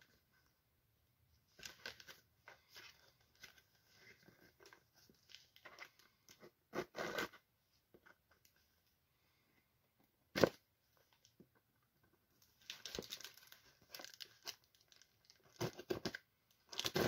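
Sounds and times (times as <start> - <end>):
packing tape tearing: 15.5 - 17.0.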